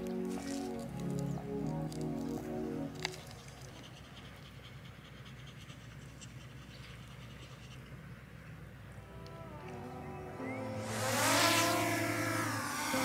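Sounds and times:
small dog panting: 0:03.6 - 0:06.6.

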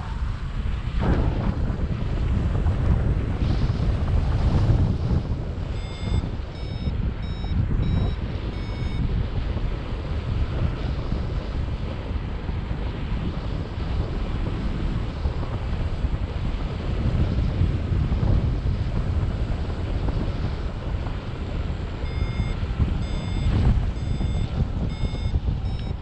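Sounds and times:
wind buffeting microphone: 0:00.0 - 0:26.0
short electronic beeps: 0:05.8 - 0:09.0, 0:22.1 - 0:26.0.

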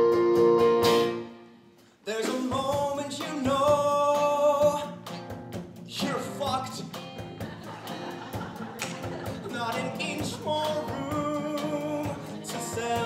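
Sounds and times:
rock band playing: 0:00.0 - 0:01.4, 0:02.9 - 0:13.0
drum hits: 0:02.2 - 0:13.0
voices singing: 0:06.8 - 0:13.0.

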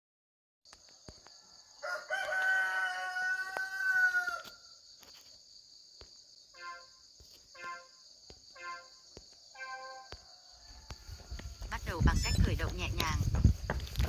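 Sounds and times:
rooster crowing: 0:01.3 - 0:04.8, 0:09.6 - 0:11.7.

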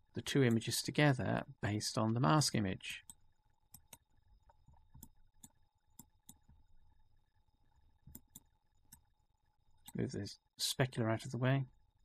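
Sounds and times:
faint steady hum: 0:00.0 - 0:12.0
faint mouse clicks: 0:03.0 - 0:06.6, 0:08.0 - 0:09.1.

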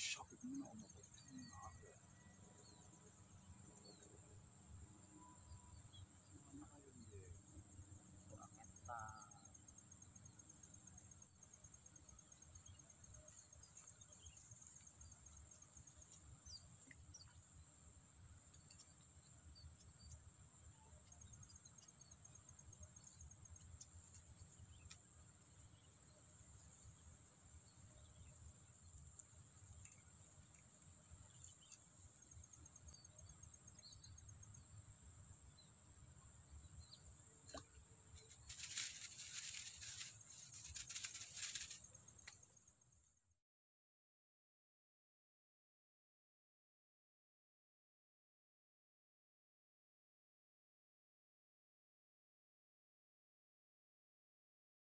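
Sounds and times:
crickets droning: 0:00.0 - 0:43.2
fast pulsing insect trill: 0:00.0 - 0:43.2.

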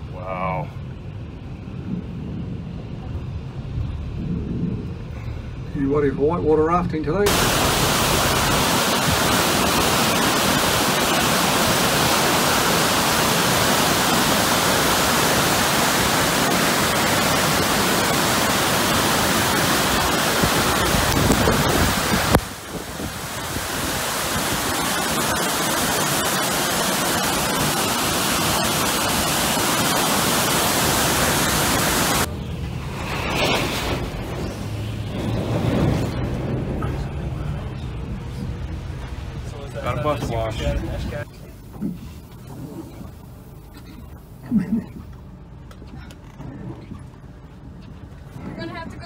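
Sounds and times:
rushing floodwater and waterfall: 0:07.2 - 0:41.6.

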